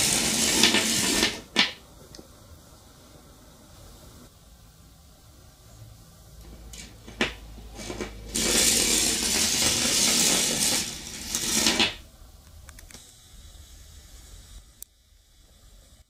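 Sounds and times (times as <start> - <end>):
metallic rattling and scraping: 0.0 - 1.5, 6.7 - 12.0.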